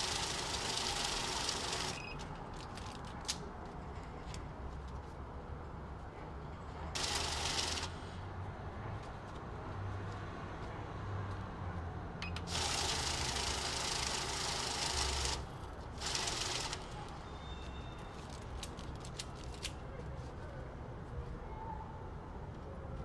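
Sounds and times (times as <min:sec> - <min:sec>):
banknote counter whirring: 0:00.0 - 0:02.1, 0:07.0 - 0:08.0, 0:12.4 - 0:17.2
paper rustling: 0:18.1 - 0:20.3.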